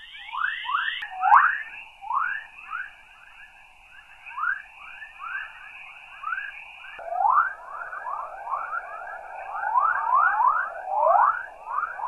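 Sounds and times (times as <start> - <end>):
rising whistle-like chirps: 4.1 - 12.0.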